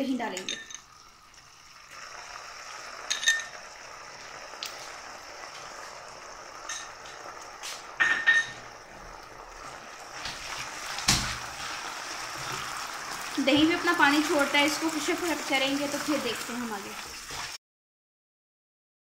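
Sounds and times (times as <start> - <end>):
syrup boiling in a pan: 0.0 - 17.6
metal spoon clinking on pan: 0.3 - 0.9, 3.1 - 3.6, 6.6 - 7.0, 8.0 - 8.6.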